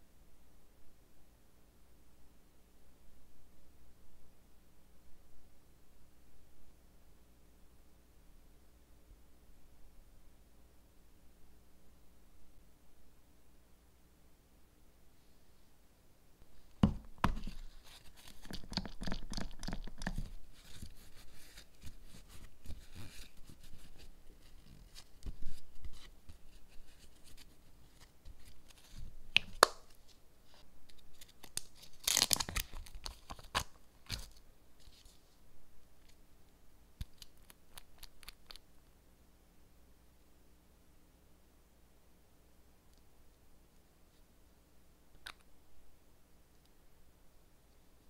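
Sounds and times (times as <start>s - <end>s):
scratchy rustling: 17.3s - 29.2s.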